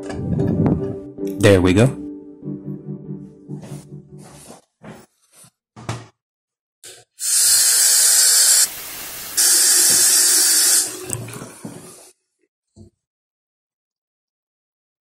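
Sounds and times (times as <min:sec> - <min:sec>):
faucet water splashing: 0:07.2 - 0:12.1.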